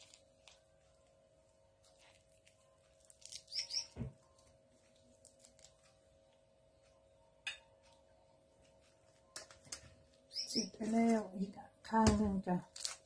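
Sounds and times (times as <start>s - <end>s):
faint steady hum: 0.0s - 12.9s
hands tearing fruit pith: 1.8s - 3.8s, 5.2s - 5.8s, 12.7s - 13.0s
bird chirps: 3.4s - 4.0s, 10.3s - 10.8s.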